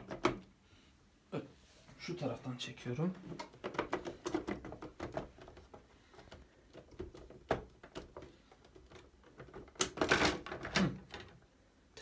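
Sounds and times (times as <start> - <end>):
plastic parts clicking and knocking: 0.0 - 0.5, 3.0 - 11.5.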